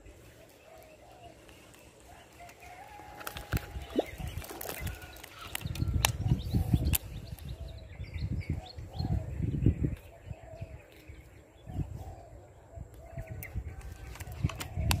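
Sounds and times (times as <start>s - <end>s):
dove cooing: 0.0s - 5.2s, 8.5s - 13.4s.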